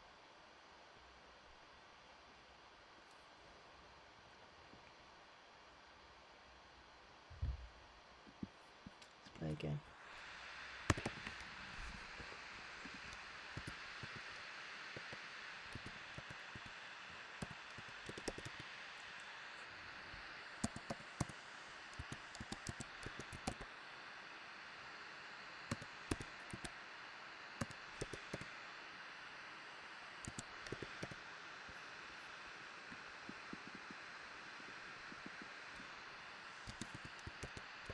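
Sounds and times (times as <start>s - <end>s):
steady low hiss: 0.0s - 37.9s
keyboard typing: 10.8s - 14.4s, 15.0s - 16.7s, 17.3s - 19.3s, 20.6s - 23.6s, 25.7s - 26.7s, 27.6s - 28.5s, 30.2s - 31.2s, 36.6s - 37.9s.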